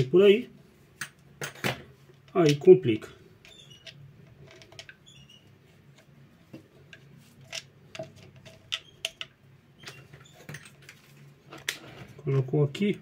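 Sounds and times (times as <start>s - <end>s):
plastic parts clicking: 6.9s - 11.8s.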